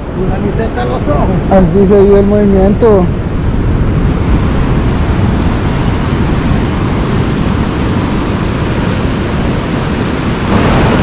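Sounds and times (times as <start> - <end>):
heavy surf breaking: 0.0 - 11.0
wind buffeting microphone: 0.0 - 11.0.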